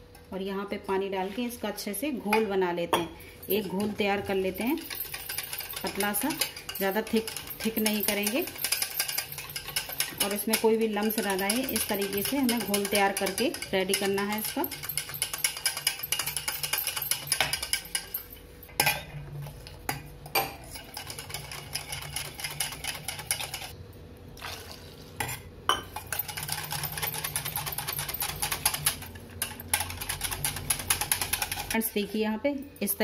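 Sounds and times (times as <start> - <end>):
whisk beating batter in metal bowl: 4.7 - 18.1, 20.6 - 23.7, 26.2 - 31.8.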